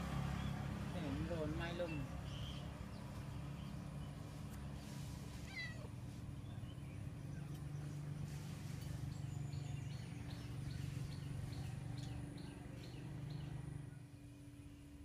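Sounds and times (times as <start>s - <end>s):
steady low hum: 2.0s - 15.0s
cat meowing: 5.4s - 5.9s.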